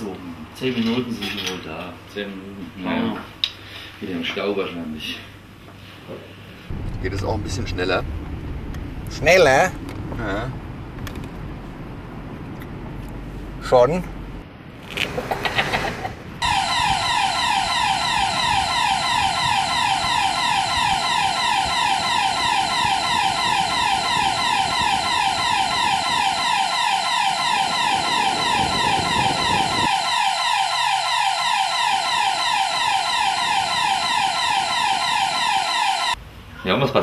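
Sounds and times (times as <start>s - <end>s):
car road and engine rumble: 6.7s - 15.1s
electronic siren wailing: 16.4s - 36.2s.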